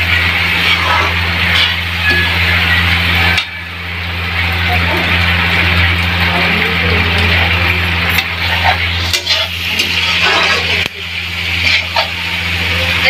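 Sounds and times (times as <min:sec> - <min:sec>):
food frying in oil: 0:00.0 - 0:13.0
low hum: 0:00.0 - 0:13.0
metal spatula scraping a pan: 0:00.5 - 0:03.6, 0:08.1 - 0:12.4.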